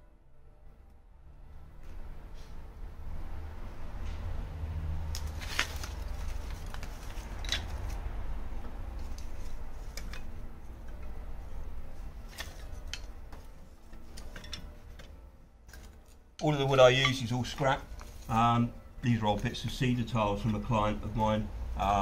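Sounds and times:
low steady rumble: 0:00.0 - 0:22.0
wooden sticks knocking: 0:12.4 - 0:17.7.

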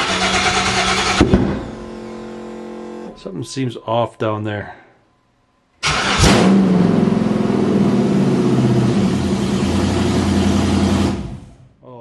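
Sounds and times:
loud engine revving: 0:05.8 - 0:11.6.

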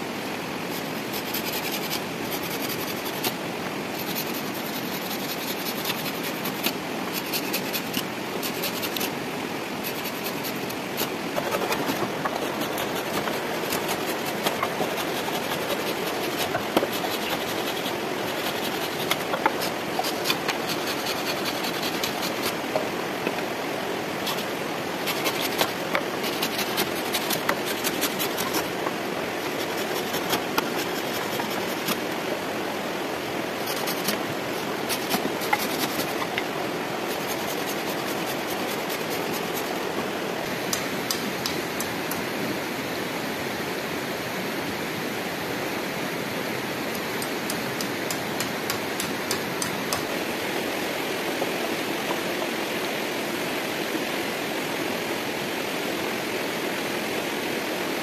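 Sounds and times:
stream rushing: 0:00.0 - 0:58.0
hand saw rasping through wood: 0:00.8 - 0:03.4, 0:04.0 - 0:09.1, 0:09.8 - 0:22.6, 0:24.2 - 0:32.1, 0:33.6 - 0:36.5, 0:37.1 - 0:39.8.

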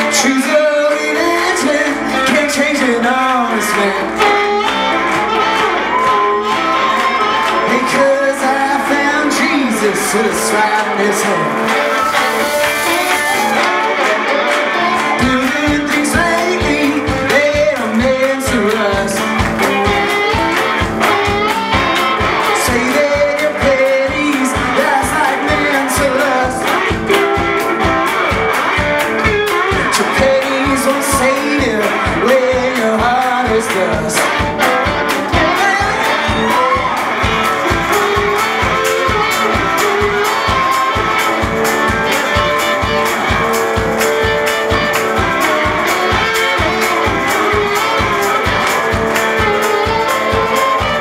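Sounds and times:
person singing lead vocal: 0:00.0 - 0:04.9, 0:06.8 - 0:27.9, 0:29.5 - 0:41.2
electric guitar: 0:00.0 - 0:51.0
rock band playing: 0:00.0 - 0:51.0
harmonica: 0:11.6 - 0:13.7, 0:34.9 - 0:51.0
steady kick drum beat: 0:15.2 - 0:51.0.

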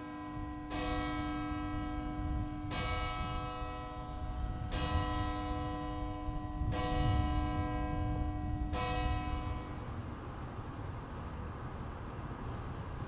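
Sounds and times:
church bell tolling: 0:00.0 - 0:09.9.

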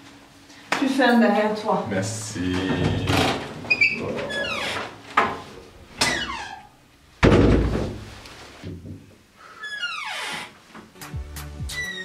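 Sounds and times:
door hinges creaking: 0:02.4 - 0:08.0, 0:09.5 - 0:10.7, 0:11.7 - 0:12.0
door shutting with heavy thud: 0:07.2 - 0:08.1.

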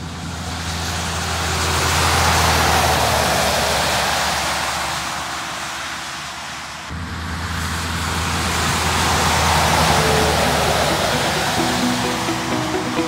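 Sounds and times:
heavy truck passing at speed: 0:00.7 - 0:12.5
vehicle approaching: 0:06.9 - 0:13.0.

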